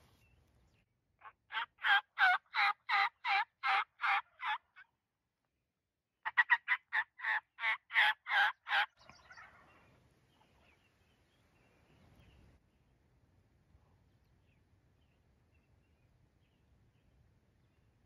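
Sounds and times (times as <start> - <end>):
turkey call yelps: 1.2 - 4.8, 6.2 - 9.7.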